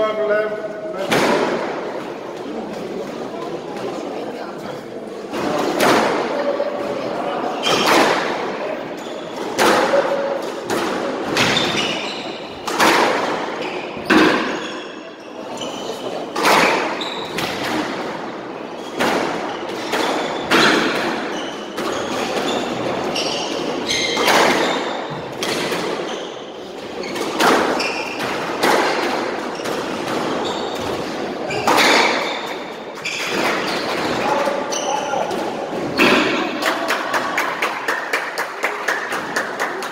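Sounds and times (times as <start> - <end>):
squash ball hitting rackets and walls: 1.0 - 3.0, 5.3 - 37.2
shoes squeaking on wooden floor: 11.4 - 12.7, 13.5 - 17.4, 18.7 - 28.5, 29.4 - 36.3.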